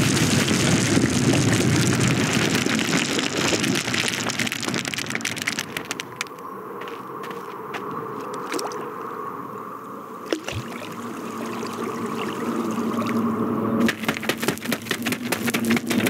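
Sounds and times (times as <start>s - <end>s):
rapid crackle of clicks: 0.0s - 6.5s, 13.8s - 16.0s
buzzing drone of insect wings: 0.0s - 16.0s.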